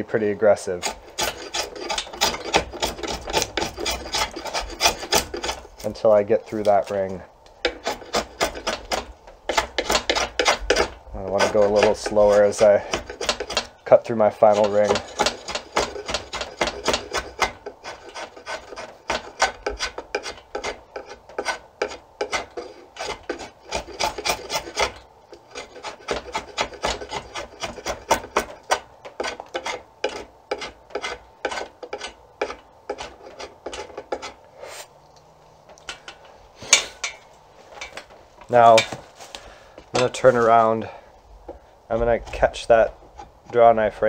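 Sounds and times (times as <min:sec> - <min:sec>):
draw knife scraping wood: 0:00.7 - 0:13.8, 0:14.4 - 0:34.9.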